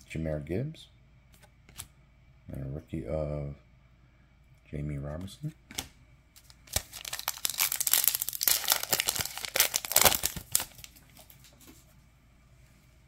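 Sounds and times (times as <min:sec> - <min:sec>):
plastic wrapper crinkling and tearing: 0:06.4 - 0:11.6.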